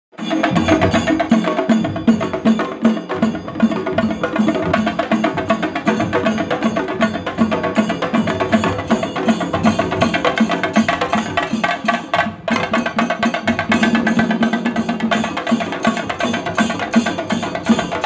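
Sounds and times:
drummers playing barrel drums: 0.1 - 18.0.

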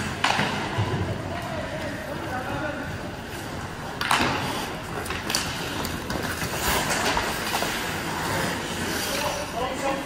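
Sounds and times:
clacks and scrapes: 4.0 - 9.5.

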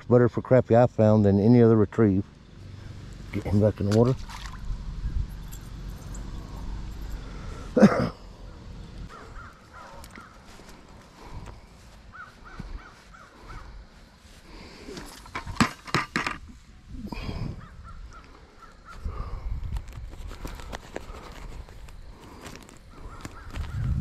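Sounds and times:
crows cawing: 8.4 - 13.9, 22.9 - 23.8.

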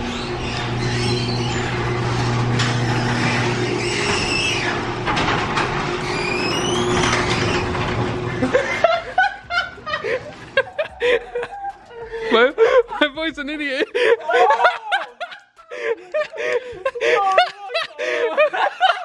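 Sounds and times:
garage door opener humming: 0.0 - 11.9.

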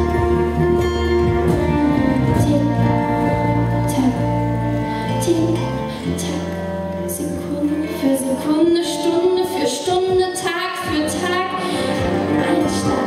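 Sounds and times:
acoustic band playing: 0.0 - 13.0
woman singing: 2.2 - 4.4, 5.0 - 13.0.

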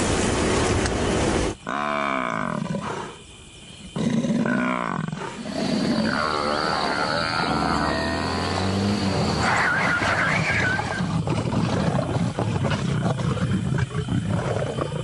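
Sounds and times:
lions growling: 4.0 - 15.0.

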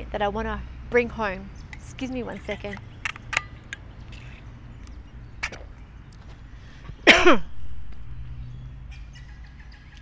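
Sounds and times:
woman clearing her throat: 7.0 - 7.5.

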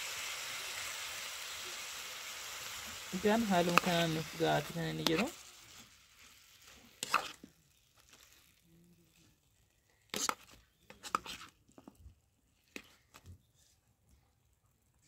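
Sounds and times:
metal spoon stirring in pot: 2.6 - 13.2
spoon scraping and clinking pot: 6.9 - 8.4, 10.1 - 11.5.

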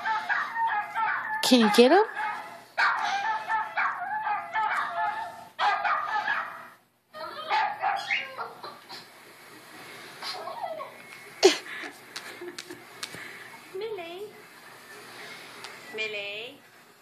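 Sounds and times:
small dogs barking and yipping: 0.0 - 9.0.

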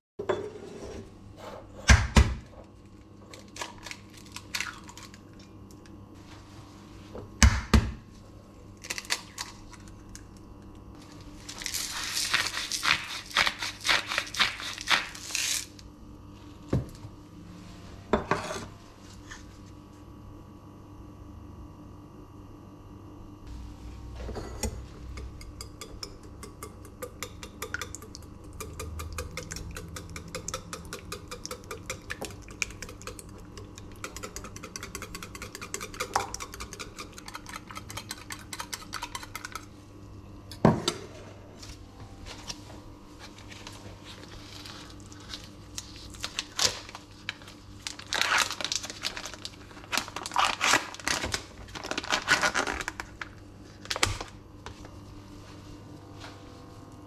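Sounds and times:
plastic film crinkling: 11.2 - 12.8, 44.2 - 54.4
whisk beating eggs in metal bowl: 24.9 - 39.7.

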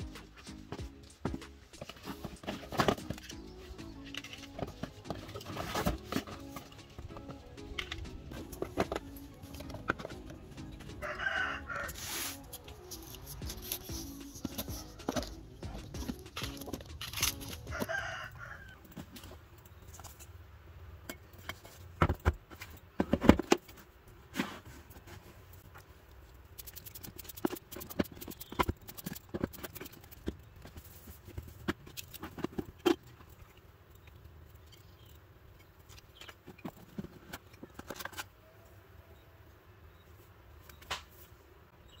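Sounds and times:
boxes and phone clicking and knocking: 0.0 - 11.4, 12.5 - 18.2, 21.0 - 25.2, 26.6 - 38.4.

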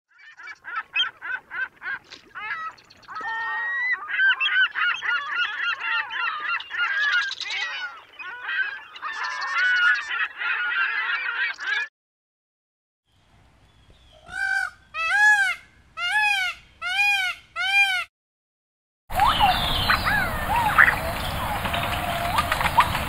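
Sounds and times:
birds calling: 0.1 - 11.9, 19.1 - 23.0.

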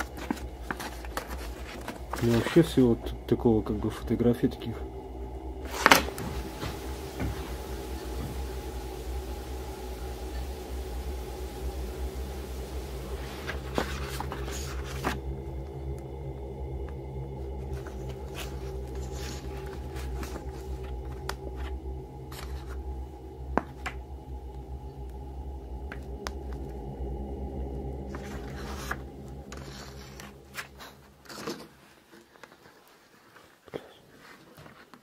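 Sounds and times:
paper photographs rustling: 0.0 - 2.6
steady low drone: 0.0 - 32.1.

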